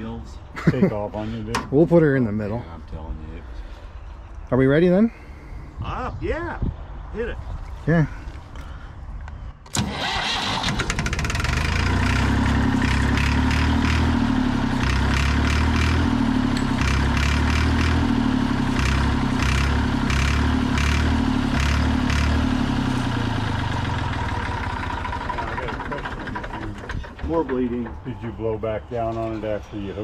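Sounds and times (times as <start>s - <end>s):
diesel engine cranking on starter: 9.6s - 28.4s.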